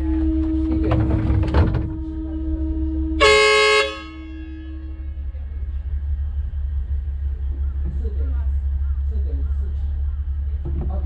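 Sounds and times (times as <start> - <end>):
train horn blast: 0.0 - 5.5
low rumble: 0.0 - 11.0.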